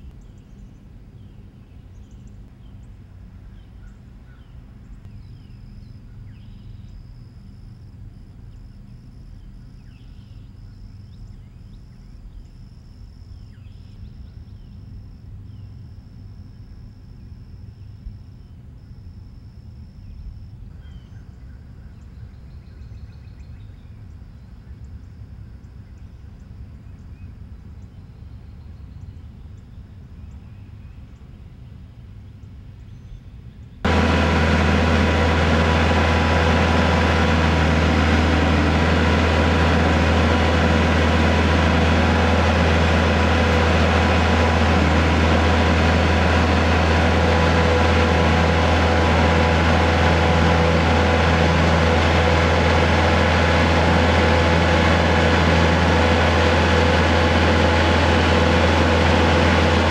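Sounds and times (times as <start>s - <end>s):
faint bird chirps: 3.5s - 31.3s
insect drone: 5.2s - 27.9s
tractor engines running: 33.9s - 59.9s.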